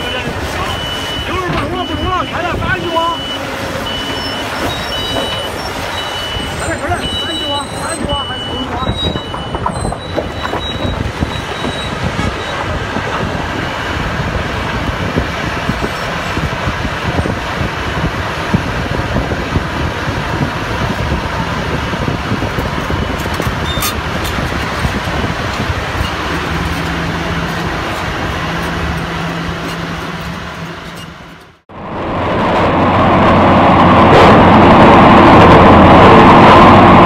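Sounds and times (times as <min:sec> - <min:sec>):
diesel engine under load: 0:00.0 - 0:37.0
rocks clattering and grinding: 0:22.4 - 0:31.6.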